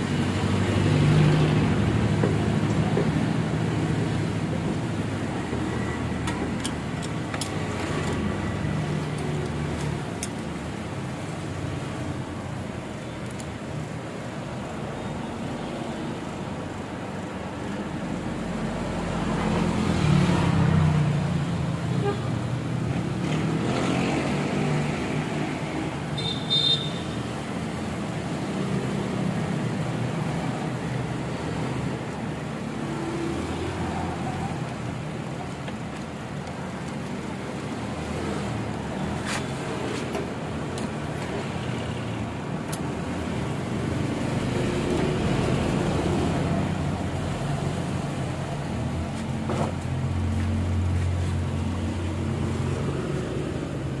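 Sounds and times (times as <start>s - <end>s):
road traffic rumble: 0.0s - 54.0s.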